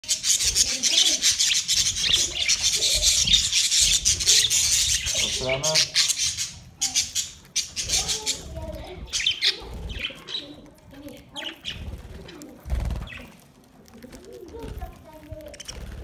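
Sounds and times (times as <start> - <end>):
budgerigars chirping: 0.0 - 10.6, 11.4 - 12.2
budgerigars fluttering wings: 0.2 - 5.4, 11.5 - 13.4, 14.0 - 16.0
rustling: 7.4 - 16.0.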